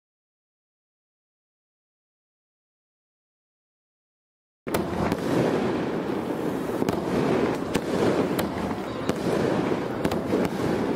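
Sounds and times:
fireworks crackling and popping: 4.7 - 10.9.

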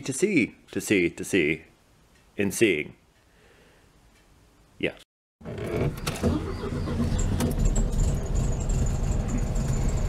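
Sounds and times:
car engine running: 5.9 - 10.0.

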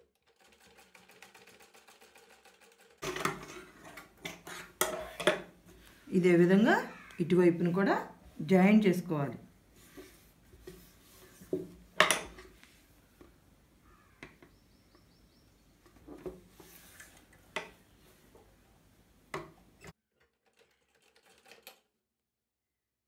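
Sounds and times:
sewing tools clicking and clinking: 0.0 - 4.1, 20.2 - 21.9.

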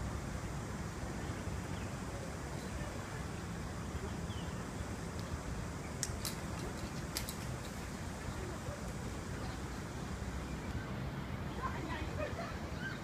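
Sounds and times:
sharp clicks: 6.0 - 7.8.

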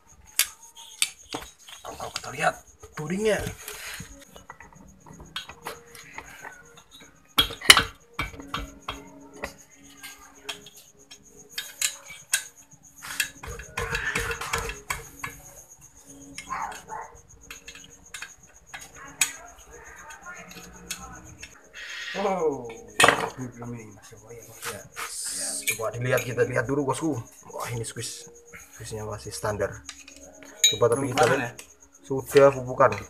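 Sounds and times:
metal tools and parts clinking: 0.1 - 21.6, 22.2 - 33.0.

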